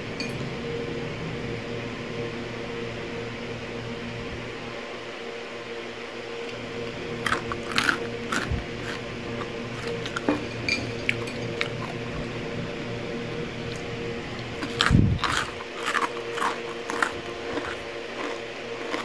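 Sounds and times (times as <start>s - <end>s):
steady low hum: 0.0s - 19.0s
crunchy snack being chewed: 7.2s - 12.0s, 14.6s - 19.0s.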